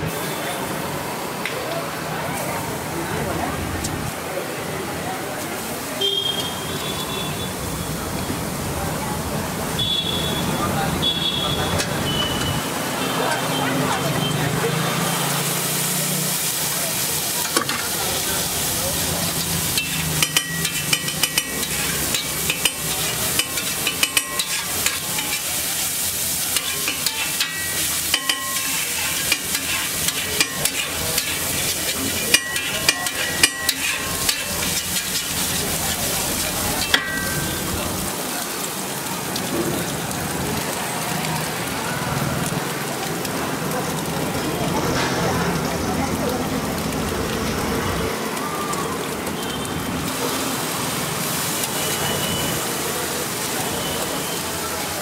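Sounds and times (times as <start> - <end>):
food sizzling on griddle: 0.0 - 55.0
metal spatula scraping griddle: 19.7 - 25.6, 26.4 - 37.4.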